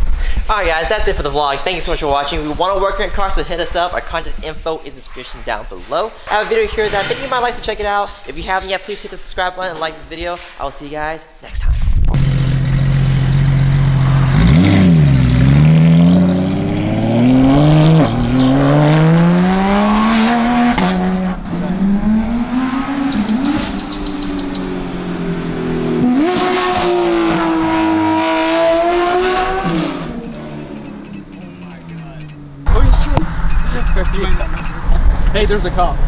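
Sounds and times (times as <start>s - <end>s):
sports car engine accelerating: 12.1s - 33.6s.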